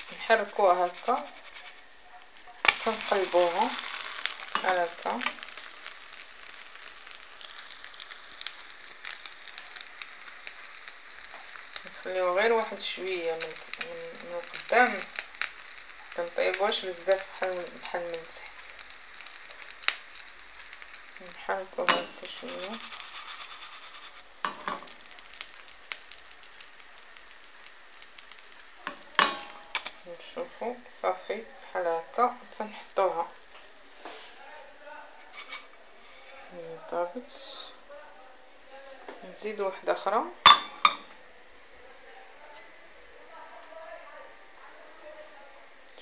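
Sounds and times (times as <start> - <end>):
pancake sizzling in a pan: 0.0 - 46.0.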